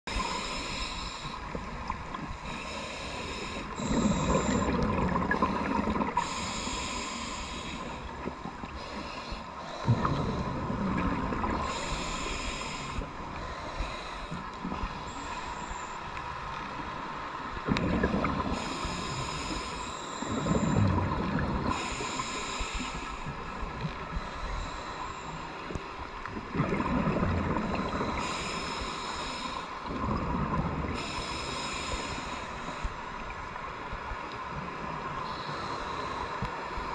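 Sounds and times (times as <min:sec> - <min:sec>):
regulator hiss on inhale: 0:00.1 - 0:10.7, 0:11.4 - 0:17.3, 0:18.3 - 0:26.2, 0:27.6 - 0:30.0, 0:30.8 - 0:34.2, 0:35.2 - 0:36.9
exhaled bubbles rumbling: 0:03.8 - 0:06.4, 0:09.7 - 0:12.0, 0:17.6 - 0:19.2, 0:20.3 - 0:21.9, 0:26.3 - 0:28.3, 0:29.9 - 0:31.0.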